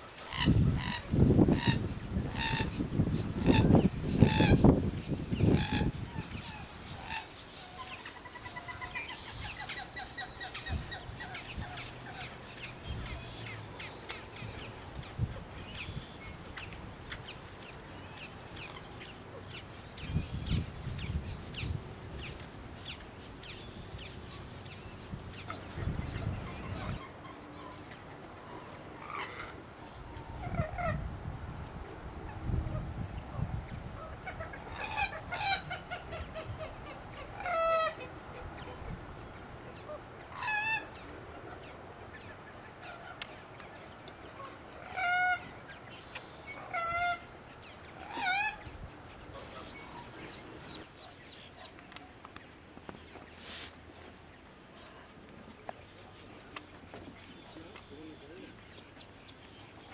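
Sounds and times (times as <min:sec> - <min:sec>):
wind rumble on microphone: 0:00.3 - 0:07.2, 0:10.6 - 0:12.0, 0:14.4 - 0:17.1, 0:20.0 - 0:23.0, 0:23.8 - 0:27.1, 0:30.0 - 0:37.5.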